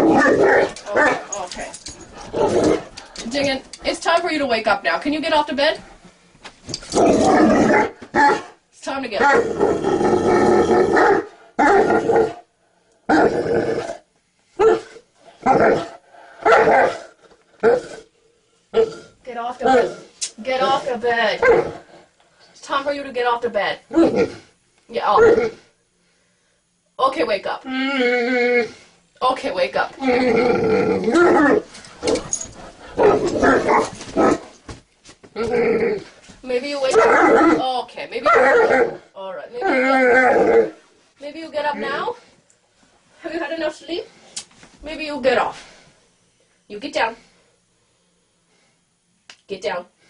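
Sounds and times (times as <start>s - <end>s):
dog grumbling and growling: 0.0s - 3.5s, 6.8s - 8.5s, 9.2s - 12.5s, 13.1s - 18.1s, 18.7s - 22.0s, 23.9s - 25.7s, 27.6s - 28.9s, 30.0s - 34.6s, 35.3s - 36.2s, 36.8s - 40.8s.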